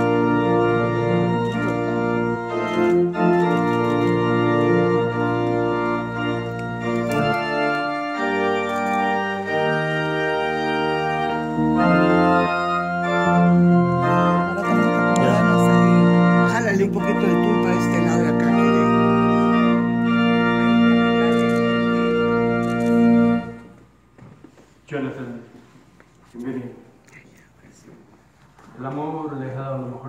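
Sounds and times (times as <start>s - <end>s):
organ playing slow chords: 0.0s - 24.0s.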